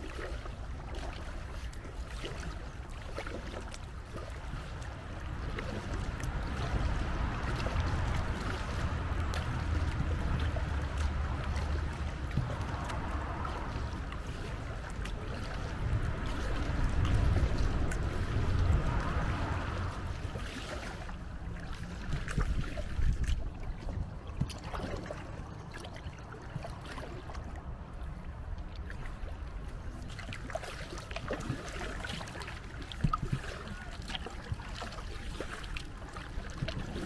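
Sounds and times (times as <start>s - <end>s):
paddles splashing in water: 0.0s - 37.0s
low rumble: 4.8s - 33.0s.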